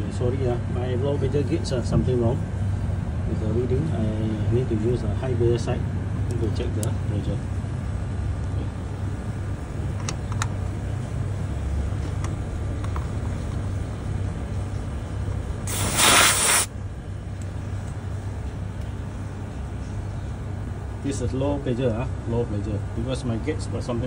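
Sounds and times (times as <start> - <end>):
condensing unit humming: 0.0 - 24.0
refrigerant hiss: 15.6 - 16.8.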